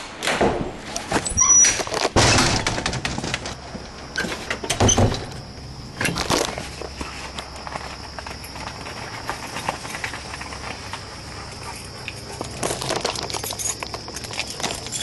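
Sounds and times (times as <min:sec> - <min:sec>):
door knocks and rustling: 0:02.1 - 0:03.6, 0:04.2 - 0:05.3.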